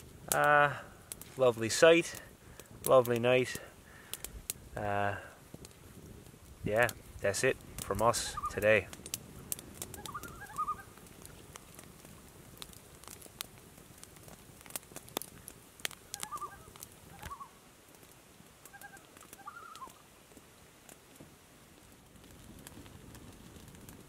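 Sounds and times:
campfire crackling and popping: 0.0 - 24.0
short squeaky calls: 8.3 - 8.6, 10.0 - 10.9, 16.2 - 17.6, 18.7 - 20.0.

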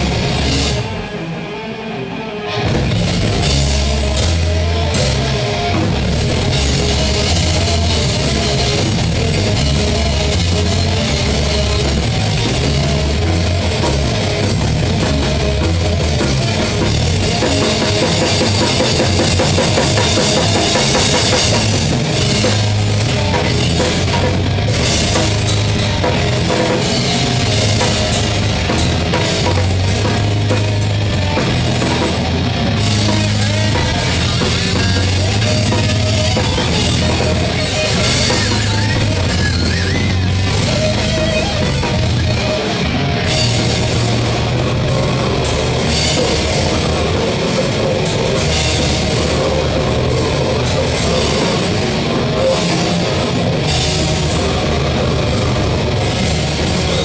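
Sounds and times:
drum kit: 0.0 - 57.0
metal band playing live: 0.0 - 57.0.

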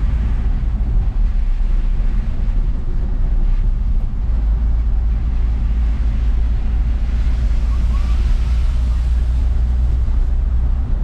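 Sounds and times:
minibus engine and road noise: 0.0 - 11.0.

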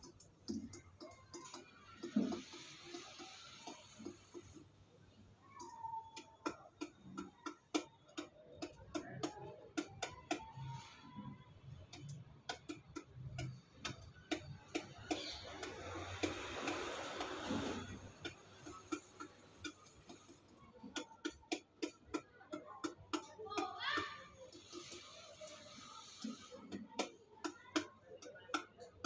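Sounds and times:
hiss: 1.3 - 4.7, 14.7 - 20.2, 23.6 - 27.2
pigeon beak pecking metal bowl: 11.9 - 25.7.

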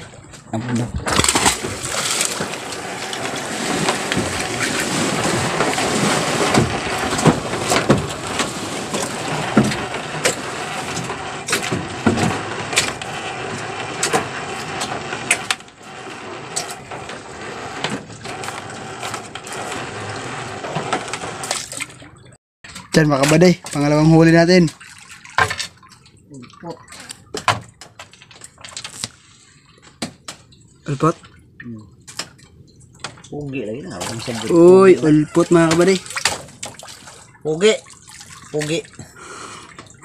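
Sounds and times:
water splashing beside boat: 0.0 - 40.0
rope knocking and rustling: 0.9 - 13.0.

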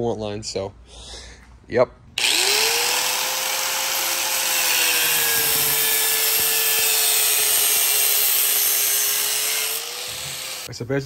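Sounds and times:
angle grinder grinding metal: 2.2 - 10.7.

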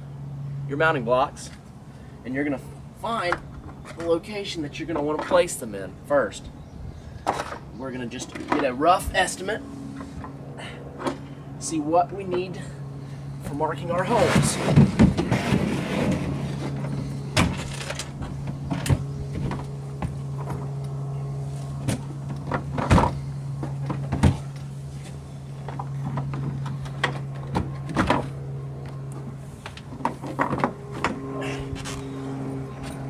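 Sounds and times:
steady low hum: 0.0 - 33.0
cooler knocking and scraping: 14.0 - 20.7.

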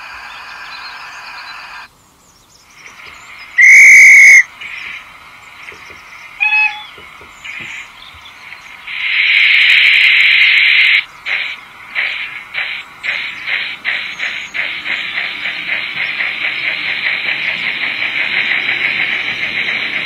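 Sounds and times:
steam hissing: 2.8 - 20.0
multi-pitch train whistle: 3.6 - 4.5, 6.4 - 6.9
steam locomotive whistle blast: 3.6 - 4.5, 6.4 - 6.9.

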